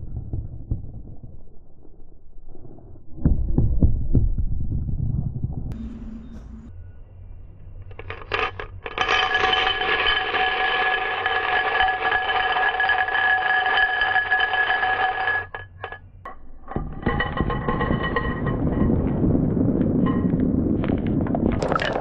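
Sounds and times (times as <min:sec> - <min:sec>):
marbles rattling in a glass: 0:07.9 - 0:16.0, 0:21.5 - 0:22.0
marbles tipped onto track: 0:21.4 - 0:22.0.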